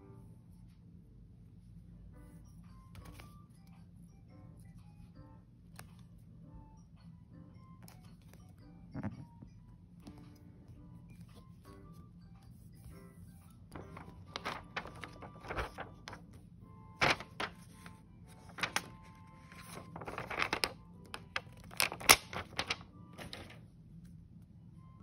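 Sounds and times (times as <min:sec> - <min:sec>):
sticker sheet rustling and crinkling: 0:13.7 - 0:16.2, 0:17.0 - 0:23.6.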